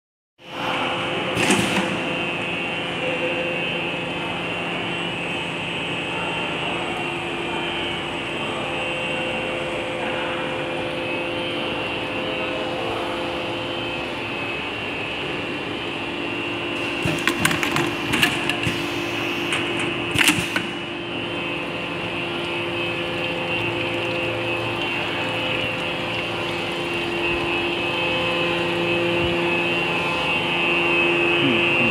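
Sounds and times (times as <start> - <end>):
machine humming: 10.2 - 31.9.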